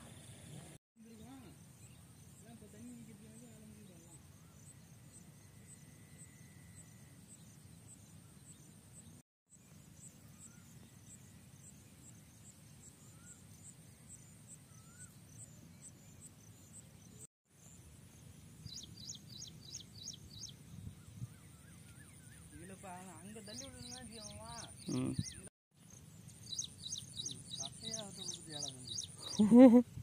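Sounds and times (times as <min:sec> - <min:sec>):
sharp bird calls: 0:18.8 - 0:25.5.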